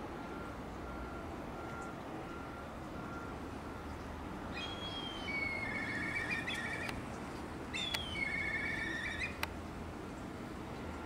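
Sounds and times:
bird of prey whistling trill call: 0:04.5 - 0:06.9, 0:07.7 - 0:09.4.

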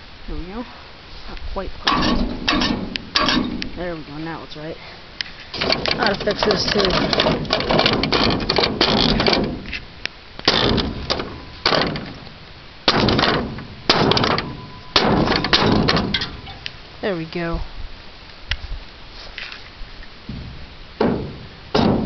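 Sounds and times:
metal scraping and rattling: 0:01.8 - 0:04.7, 0:05.3 - 0:16.9
sheet metal knocks and clanks: 0:01.9 - 0:03.9, 0:05.6 - 0:09.8, 0:10.5 - 0:12.2, 0:12.9 - 0:16.6, 0:20.3 - 0:22.0.

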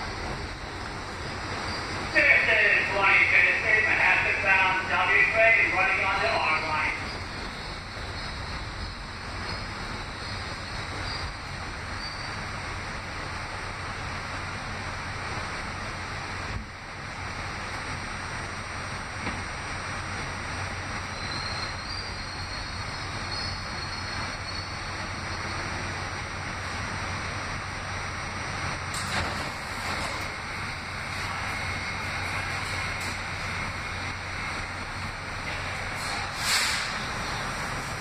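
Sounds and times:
constant low hum: 0:00.0 - 0:38.0
wheels rumbling on rails: 0:00.0 - 0:38.0
faint high wheel squeal: 0:01.2 - 0:02.0, 0:06.5 - 0:12.4, 0:21.1 - 0:25.7.

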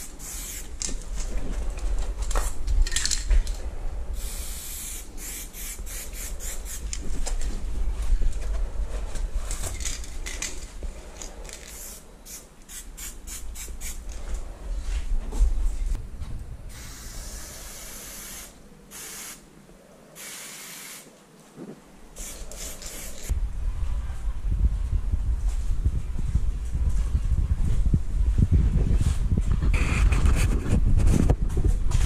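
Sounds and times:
spray paint can spraying: 0:00.0 - 0:00.9, 0:04.2 - 0:07.0, 0:11.5 - 0:14.2, 0:16.7 - 0:19.4, 0:20.2 - 0:21.1, 0:22.2 - 0:23.3
low rumble: 0:14.0 - 0:17.8, 0:23.3 - 0:32.0.

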